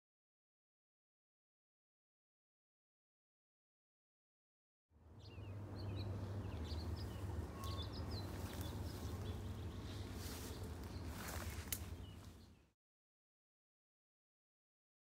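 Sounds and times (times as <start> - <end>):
small birds chirping: 5.1 - 12.8.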